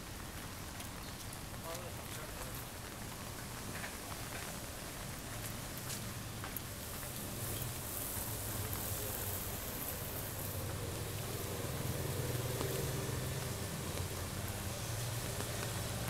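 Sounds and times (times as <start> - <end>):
rain hiss: 0.0 - 16.0
vehicle engine hum: 6.7 - 16.0.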